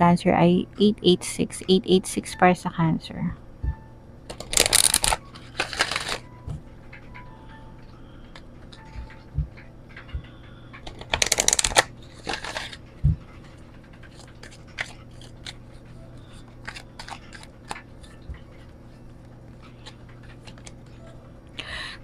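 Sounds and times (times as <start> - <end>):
cards shuffled with flicking clicks: 4.3 - 7.1, 8.3 - 12.8, 13.5 - 20.9.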